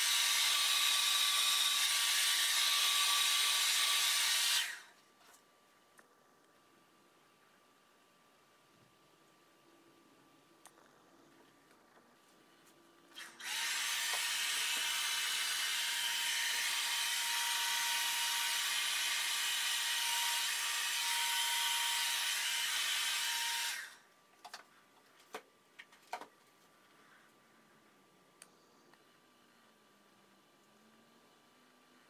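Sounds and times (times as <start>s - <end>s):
hair dryer blowing: 0.0s - 4.9s, 13.2s - 24.0s.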